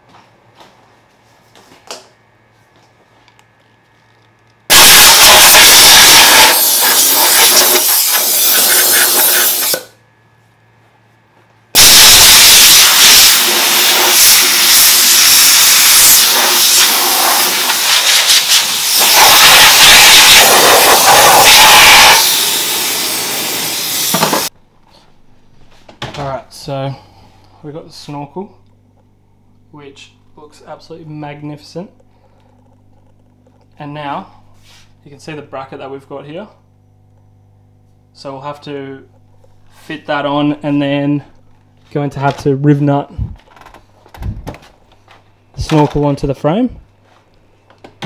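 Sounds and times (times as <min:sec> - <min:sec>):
compressed air blow gun hissing: 0:04.7 - 0:09.8, 0:11.8 - 0:24.5.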